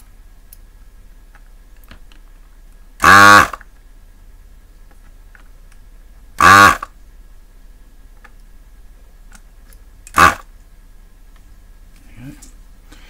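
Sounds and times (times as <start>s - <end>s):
desoldering pump buzzing suck: 3.0s - 3.6s.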